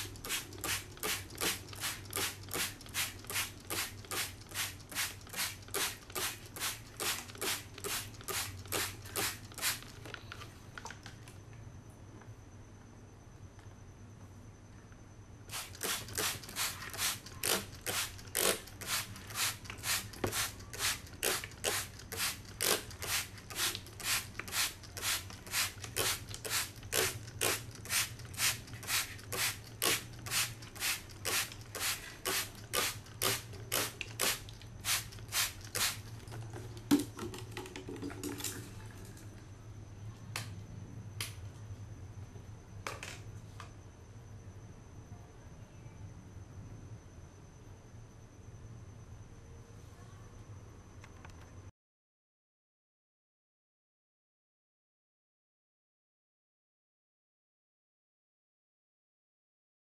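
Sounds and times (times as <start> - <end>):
spray bottle squirting: 0.0 - 10.0, 15.5 - 36.2.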